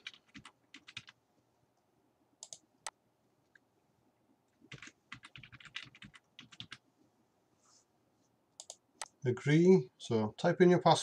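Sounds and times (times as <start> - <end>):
soft keyboard typing: 0.0 - 1.2, 2.4 - 3.6, 4.5 - 6.8, 8.6 - 9.2.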